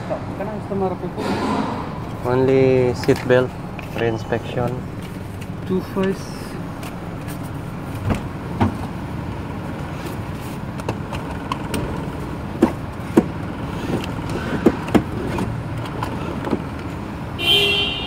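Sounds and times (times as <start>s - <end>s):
car engine idling: 0.0s - 17.8s
seatbelt clicks and knocks: 12.6s - 16.9s.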